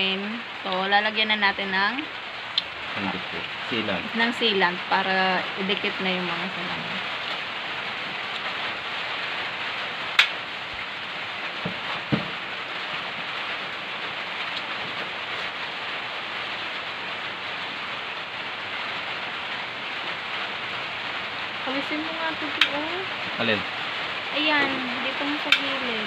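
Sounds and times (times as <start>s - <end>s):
rain hissing: 0.0s - 26.0s
soft knocks: 11.6s - 12.4s.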